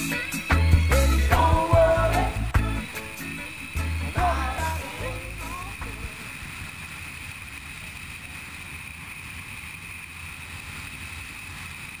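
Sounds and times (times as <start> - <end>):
motorcycle engine rumble: 0.0 - 9.6
steady high whine: 0.0 - 12.0.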